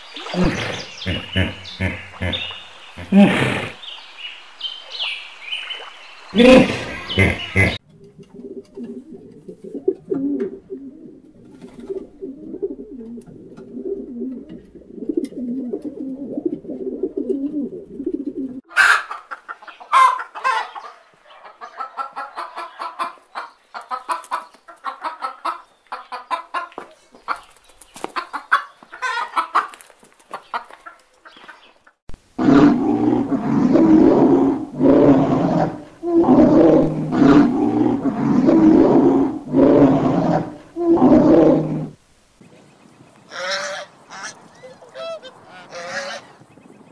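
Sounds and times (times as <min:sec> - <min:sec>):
hens clucking and cackling: 0:00.0 - 0:03.8, 0:06.3 - 0:42.0, 0:43.2 - 0:46.5
pigeons cooing: 0:00.0 - 0:03.9, 0:05.8 - 0:20.8, 0:32.4 - 0:42.0, 0:43.3 - 0:46.4
bear growling roars: 0:00.2 - 0:03.8, 0:06.4 - 0:07.8, 0:32.4 - 0:42.0.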